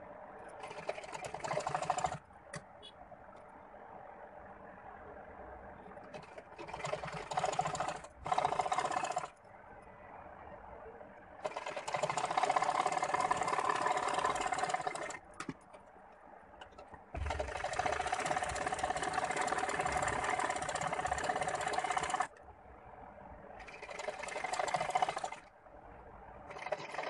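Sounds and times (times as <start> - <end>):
sewing machine stitching: 0.5 - 2.3, 6.0 - 9.4, 11.4 - 15.6, 16.7 - 22.4, 23.6 - 25.5, 26.4 - 27.0.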